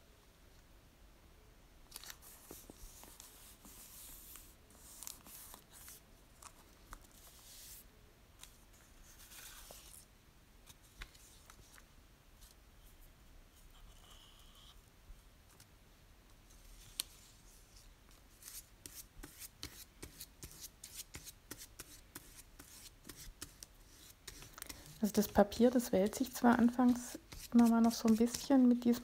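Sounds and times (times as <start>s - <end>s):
paper rustling under fingers: 1.9s - 7.8s, 16.5s - 29.0s.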